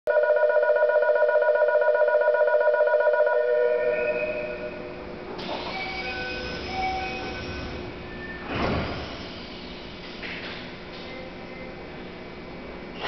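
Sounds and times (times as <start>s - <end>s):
electronic warbling departure bell: 0.1s - 4.9s
idling train rumble: 4.8s - 13.0s.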